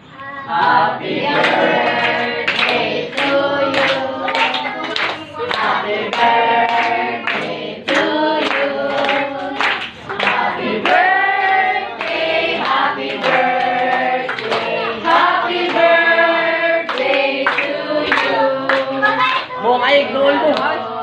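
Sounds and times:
group of people singing: 0:00.4 - 0:21.0
hand claps: 0:01.4 - 0:11.1, 0:12.0 - 0:15.9, 0:16.9 - 0:19.6.

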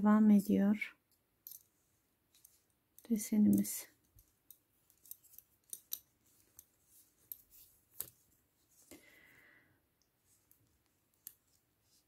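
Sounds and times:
knitting needles clicking: 0:02.3 - 0:08.2.

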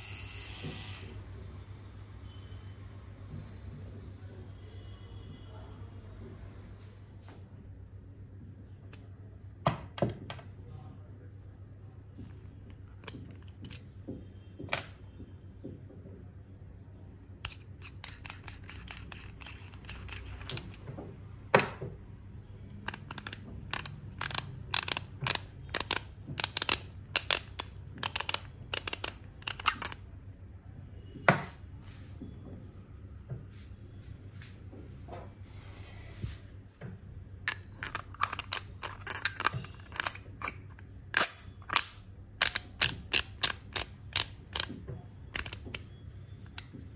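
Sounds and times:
objects clicking and knocking: 0:12.2 - 0:15.8, 0:17.4 - 0:21.9, 0:22.8 - 0:30.2, 0:37.5 - 0:46.9.

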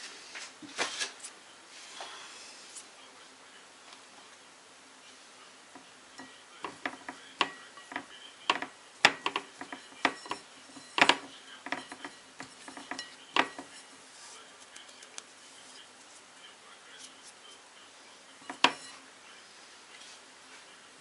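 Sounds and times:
fish tapping and scraping on plate: 0:05.7 - 0:15.3, 0:18.4 - 0:19.0.

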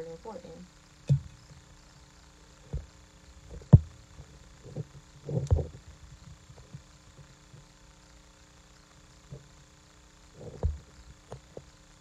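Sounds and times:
faint steady hum: 0:00.0 - 0:12.0
dull thumps and knocks: 0:01.1 - 0:01.4.

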